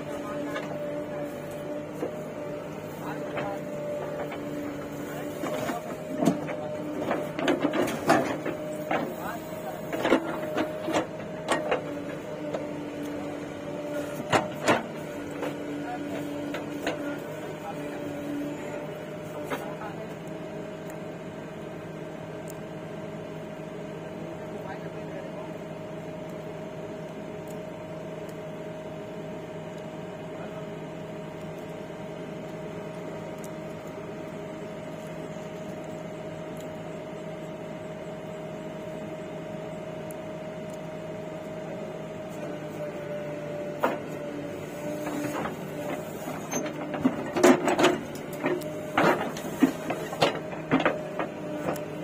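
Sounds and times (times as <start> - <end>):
diesel engine running: 0.0 - 52.0.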